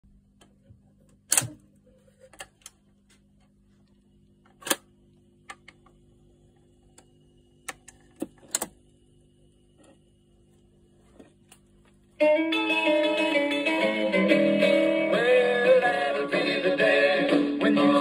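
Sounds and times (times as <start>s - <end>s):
turntable motor hum: 0.2s - 12.2s
record player mechanism clicking: 1.1s - 1.6s, 4.5s - 4.9s, 7.0s - 8.8s.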